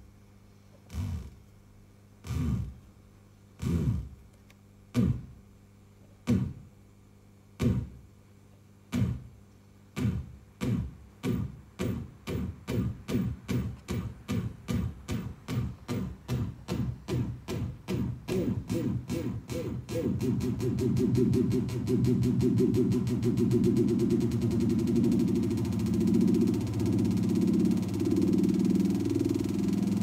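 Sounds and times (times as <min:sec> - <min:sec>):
motor-driven thuds falling in pitch: 0:03.6 - 0:04.2, 0:04.9 - 0:05.4, 0:06.2 - 0:06.7, 0:07.6 - 0:08.0, 0:08.9 - 0:09.4, 0:10.0 - 0:30.0.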